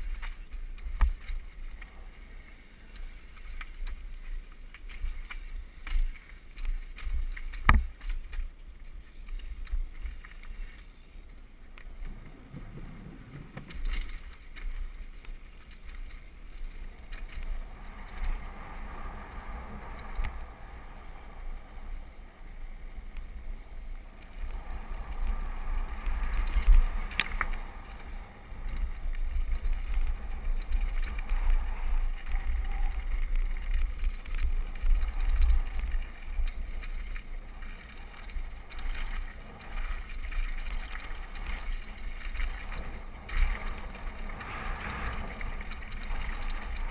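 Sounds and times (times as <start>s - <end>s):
bike rattling over bumps: 0.0s - 11.0s, 11.9s - 46.9s
wind rumbling on microphone: 0.0s - 46.9s
bike tyres skidding on gravel: 11.9s - 46.9s.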